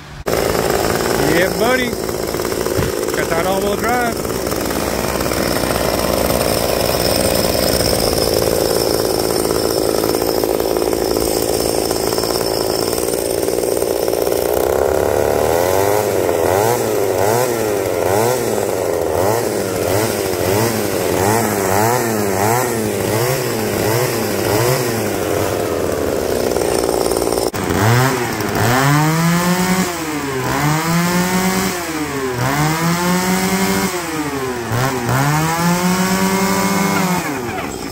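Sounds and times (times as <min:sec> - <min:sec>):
small two-stroke engine revving: 0:00.0 - 0:37.9.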